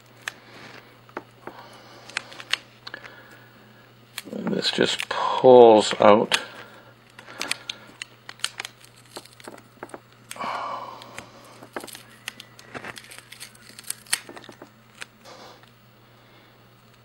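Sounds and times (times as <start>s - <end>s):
plastic film crinkling: 7.0s - 10.4s, 11.5s - 15.2s.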